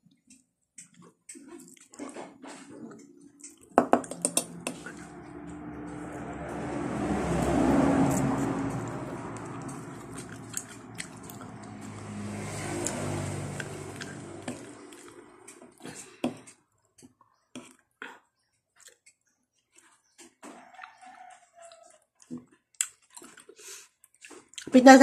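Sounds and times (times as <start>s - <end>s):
close-up chewing sounds: 0.0s - 3.8s, 4.5s - 24.8s
vehicle engine: 3.7s - 16.3s.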